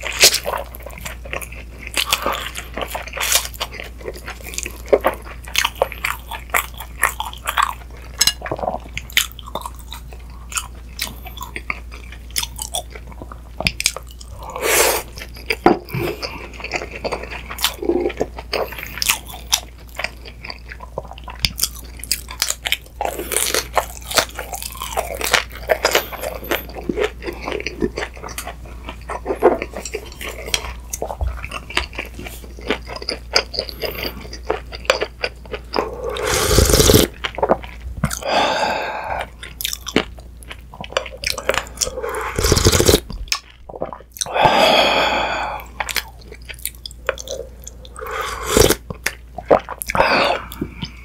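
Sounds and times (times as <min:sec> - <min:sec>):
crunchy chewing: 0:00.0 - 0:51.0
slurping broth from a spoon: 0:36.0 - 0:37.1, 0:41.8 - 0:43.0, 0:48.0 - 0:48.8.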